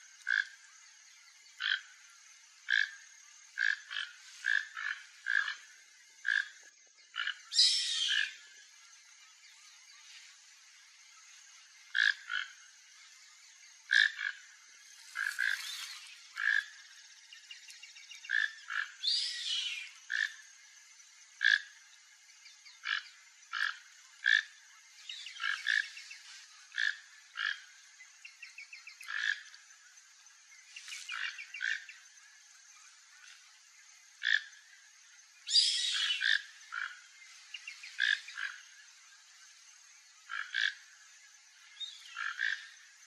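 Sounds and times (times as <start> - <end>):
toucan croaking calls: 0.2 - 0.6, 1.5 - 2.0, 2.6 - 8.5, 11.8 - 12.6, 13.8 - 16.9, 18.1 - 20.4, 21.4 - 21.8, 22.7 - 29.6, 31.1 - 32.0, 34.2 - 34.6, 35.5 - 38.8, 40.2 - 41.0, 41.8 - 42.9.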